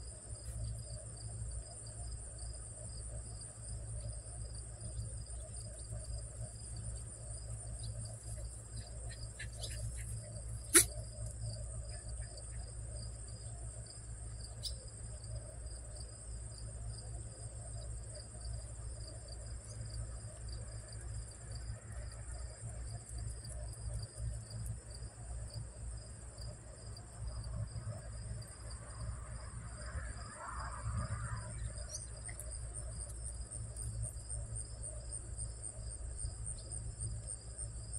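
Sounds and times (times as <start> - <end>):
insect trilling chorus: 7.8 - 13.5.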